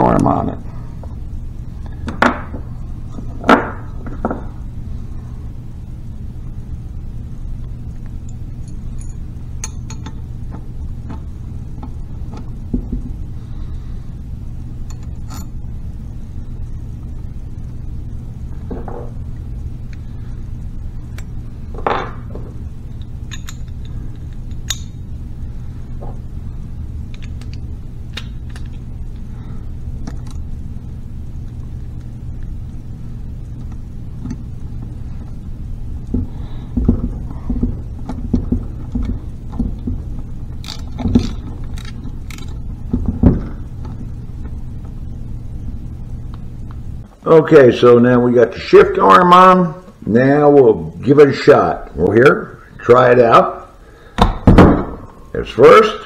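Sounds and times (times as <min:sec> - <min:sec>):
steady low hum: 0:00.0 - 0:56.0
metal tools clicking and clinking: 0:08.6 - 0:10.2, 0:23.3 - 0:24.9.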